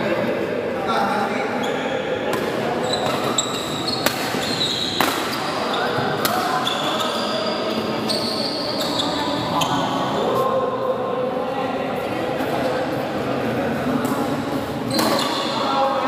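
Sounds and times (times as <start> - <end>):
murmur of voices: 0.0 - 16.0
shoes squeaking on court: 2.8 - 10.0, 14.9 - 15.6
racket hitting shuttlecock: 4.0 - 4.4, 5.0 - 5.5, 6.2 - 6.6.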